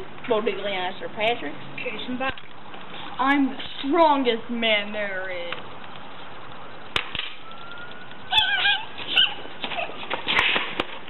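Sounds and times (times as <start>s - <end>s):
boy squealing: 7.7s - 10.0s.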